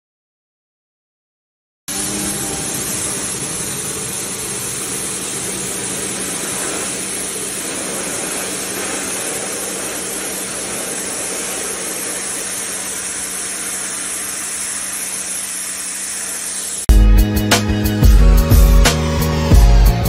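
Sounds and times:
water jet hissing on wood: 1.9s - 16.9s
pressure washer hum: 1.9s - 20.0s.

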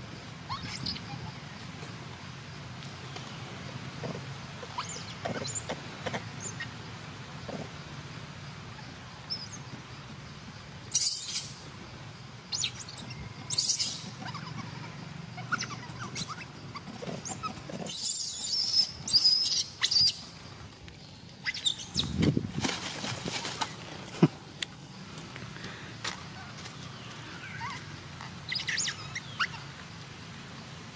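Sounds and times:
baby monkey squealing: 0.5s - 1.3s, 4.7s - 5.7s, 10.9s - 11.6s, 12.5s - 20.2s, 21.4s - 22.2s, 27.4s - 29.7s.

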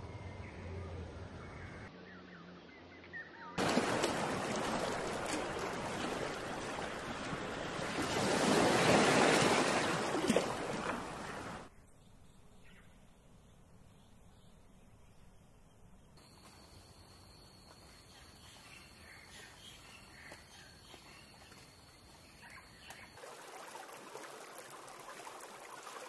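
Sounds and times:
surf washing on beach: 3.6s - 11.7s.

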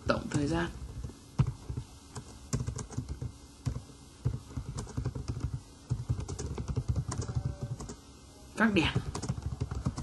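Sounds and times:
typing on computer keyboard: 1.4s - 8.0s, 9.0s - 10.0s.

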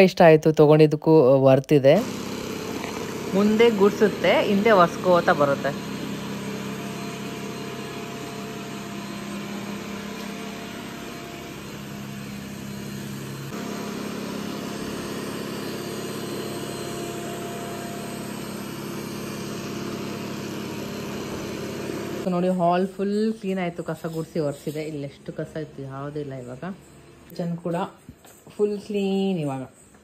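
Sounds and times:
robot vacuum motor hum: 2.0s - 22.3s.

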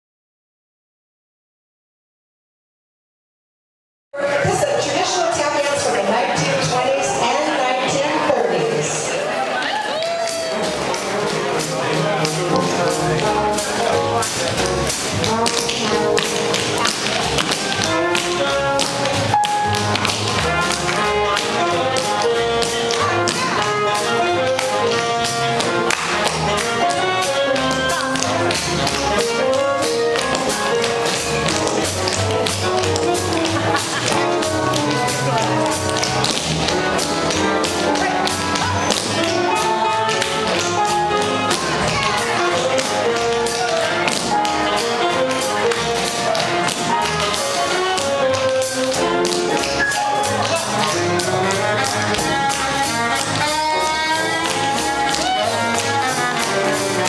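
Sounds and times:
big band swing music: 4.2s - 57.0s
tap dancing on wooden floor: 14.3s - 57.0s.

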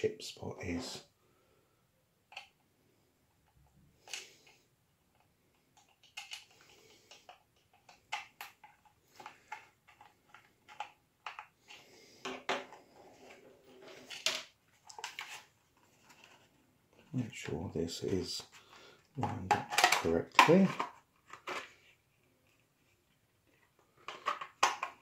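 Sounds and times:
small plastic parts clicking: 2.3s - 2.6s, 3.3s - 12.7s.

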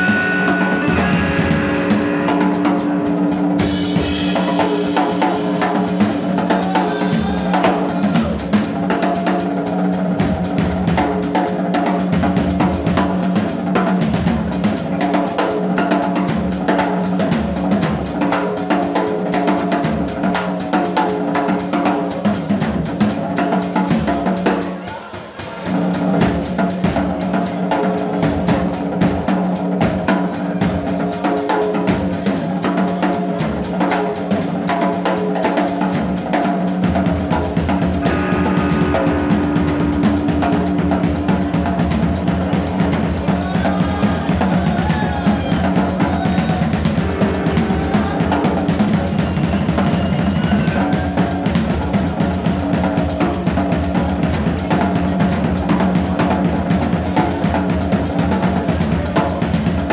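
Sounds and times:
low held note: 0.0s - 8.6s, 37.2s - 51.4s
rock drum kit: 0.0s - 59.9s.

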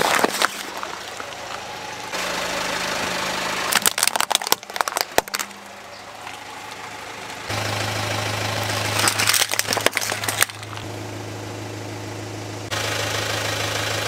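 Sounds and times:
tyre crushing plastic toys: 0.0s - 1.6s, 3.7s - 5.6s, 8.8s - 10.8s
car engine idling: 0.0s - 14.0s.

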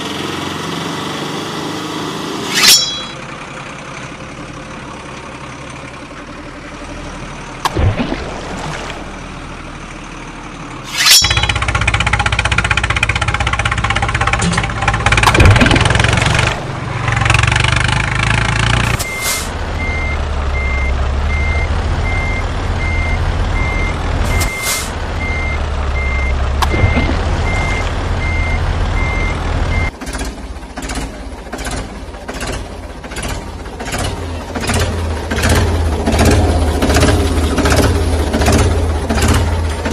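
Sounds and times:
truck engine running: 0.0s - 39.9s
tractor engine chugging: 9.2s - 19.1s, 25.2s - 39.9s
reversing alarm beeping: 19.0s - 29.9s.

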